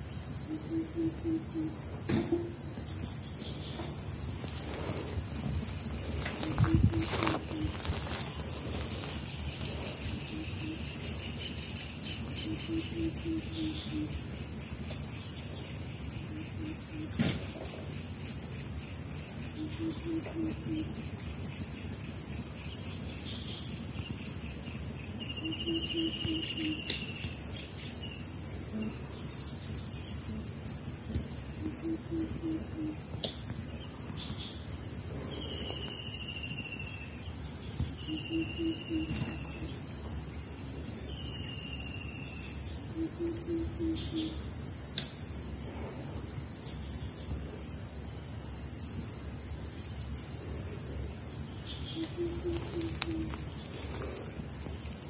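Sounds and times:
pulsing insect chorus: 0.0s - 55.0s
insects shrilling: 0.5s - 15.3s, 49.6s - 55.0s.

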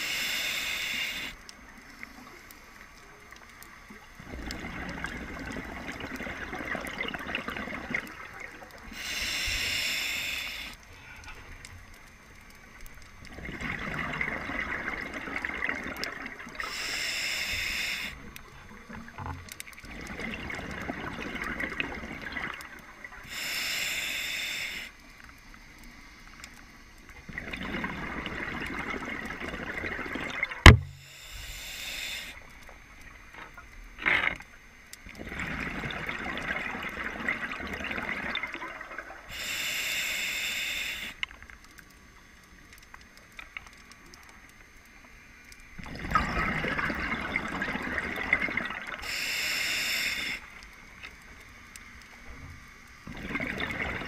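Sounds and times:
regulator hiss on inhale: 0.0s - 4.1s, 8.8s - 12.7s, 16.0s - 19.1s, 23.0s - 27.1s, 30.9s - 33.2s, 39.2s - 42.6s, 48.8s - 53.0s
exhaled bubbles rushing: 4.2s - 8.7s, 13.2s - 16.6s, 19.8s - 22.8s, 27.3s - 30.8s, 35.2s - 39.2s, 45.8s - 49.0s, 53.0s - 54.0s.

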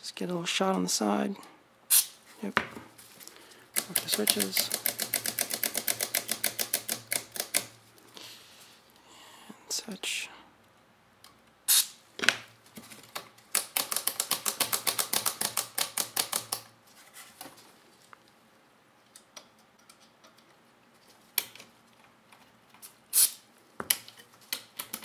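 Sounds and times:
spray can hissing: 1.9s - 2.2s, 11.7s - 12.0s, 23.1s - 23.4s
switches clicking rapidly: 3.8s - 7.7s.

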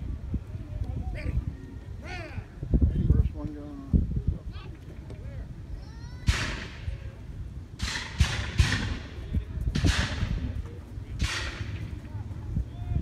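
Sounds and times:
black-powder gunshots echoing: 7.8s - 9.2s, 11.2s - 12.0s.

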